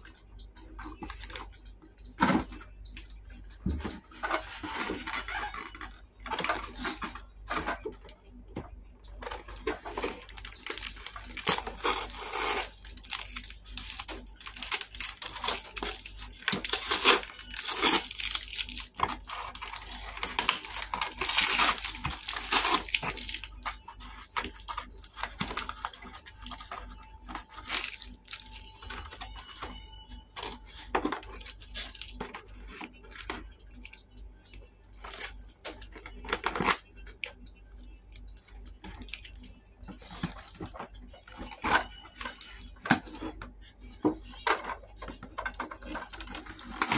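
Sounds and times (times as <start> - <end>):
cardboard packaging rustling and tearing: 3.7 - 8.1, 9.2 - 33.4, 44.6 - 46.9.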